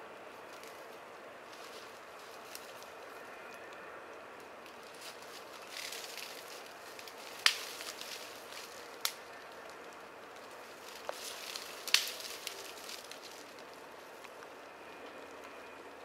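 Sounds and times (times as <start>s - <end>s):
twigs rustling: 0.3s - 16.0s
branches snapping: 1.5s - 2.9s, 4.6s - 14.5s.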